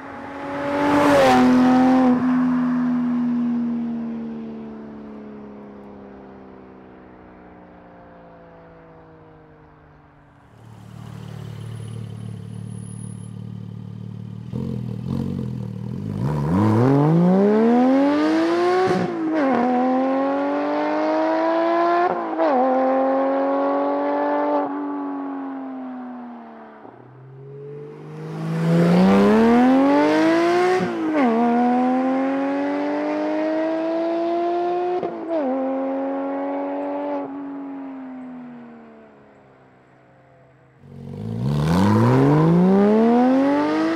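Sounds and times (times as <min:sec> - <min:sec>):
car engine revving at full throttle: 0:14.1 - 0:24.6, 0:27.8 - 0:37.2, 0:40.8 - 0:43.9.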